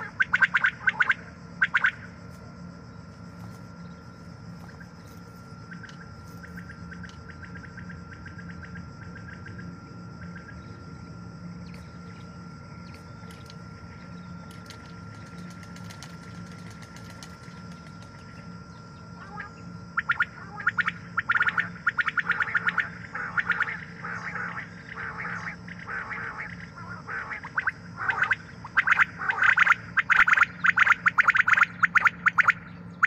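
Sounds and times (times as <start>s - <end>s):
steady low hum: 0.0s - 33.0s
quail calling: 19.2s - 32.7s.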